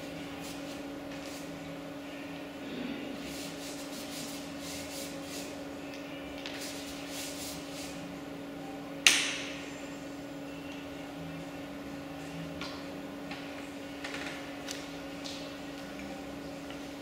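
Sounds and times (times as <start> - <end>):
steady low hum: 0.0 - 17.0
brush swishing on wet paper: 0.1 - 1.6, 3.2 - 5.6, 6.4 - 8.0.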